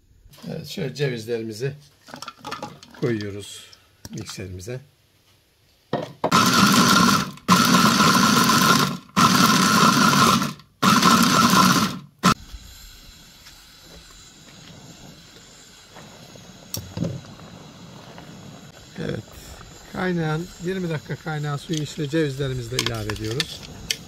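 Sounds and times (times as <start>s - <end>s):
electric food chopper whirring: 6.3s - 12.8s.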